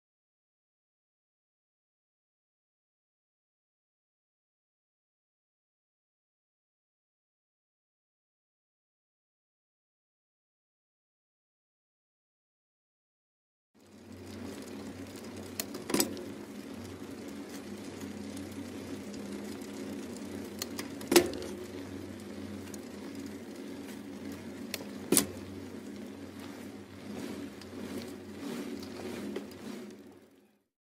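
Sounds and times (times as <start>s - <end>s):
mechanical whirring hum: 13.8s - 30.7s.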